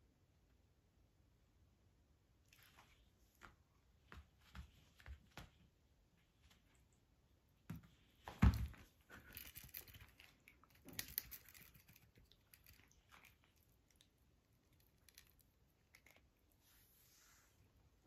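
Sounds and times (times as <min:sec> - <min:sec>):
thump on a rug: 0:07.7 - 0:08.8.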